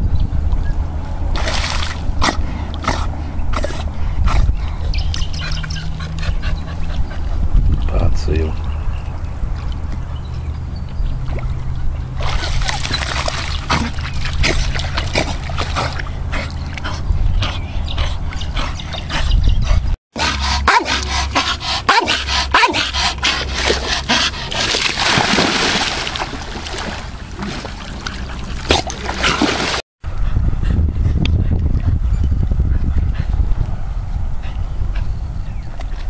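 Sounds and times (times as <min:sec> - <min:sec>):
water splashing: 0:01.3 - 0:02.1, 0:11.2 - 0:16.8, 0:22.7 - 0:29.8
dog barking: 0:20.6 - 0:21.0, 0:21.9 - 0:22.8.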